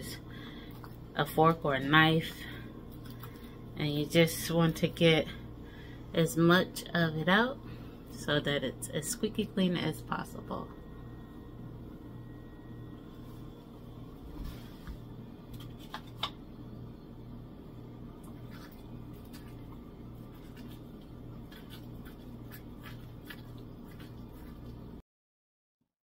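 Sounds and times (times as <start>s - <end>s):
low steady hum: 0.0s - 25.0s
spoon scraping orange halves: 18.3s - 24.8s.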